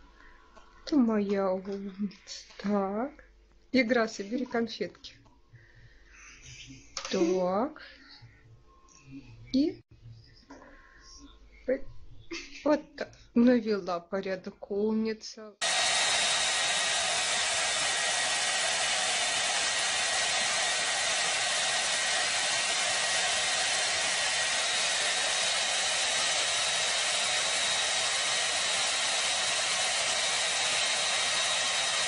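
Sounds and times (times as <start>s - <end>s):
hair dryer running: 15.6s - 32.0s.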